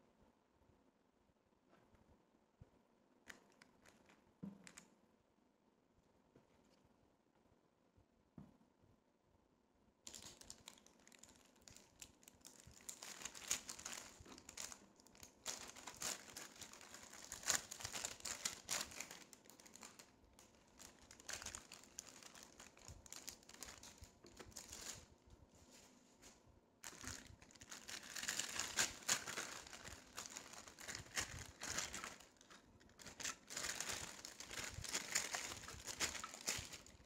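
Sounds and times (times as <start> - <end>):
foil and paper crinkling: 10.1 - 25.1, 26.8 - 37.0.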